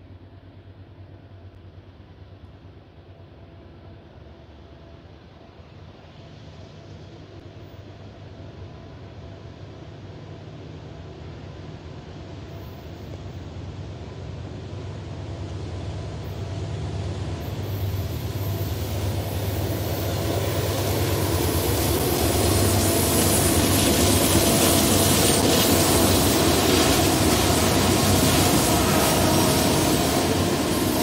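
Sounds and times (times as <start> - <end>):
diesel locomotive engine drone: 0.0 - 31.0
wheel-on-rail noise: 17.1 - 31.0.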